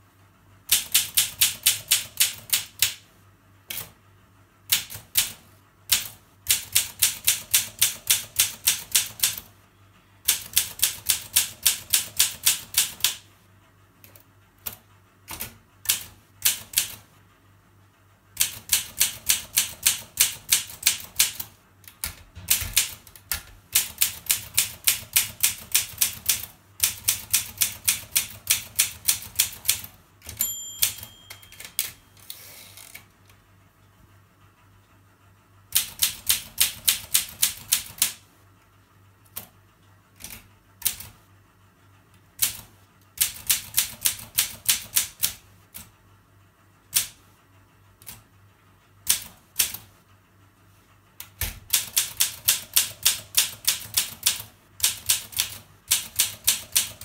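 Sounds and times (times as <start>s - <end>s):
typewriter key strikes: 0.7s - 3.0s, 4.7s - 9.4s, 18.4s - 32.0s, 51.4s - 57.0s
typewriter margin bell ring: 30.3s - 32.2s.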